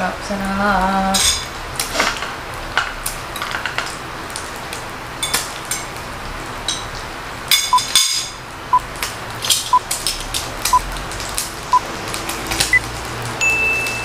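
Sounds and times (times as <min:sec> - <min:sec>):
meat sizzling on a grill: 0:00.0 - 0:14.0
chopsticks clinking on grill pan: 0:01.2 - 0:01.5
short high beeps: 0:13.4 - 0:14.0.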